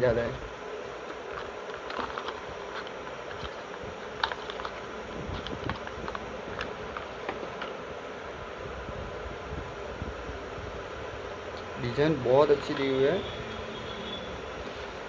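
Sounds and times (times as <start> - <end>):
steady background hum: 0.0 - 15.0
cardboard clicking and crinkling: 1.0 - 7.8.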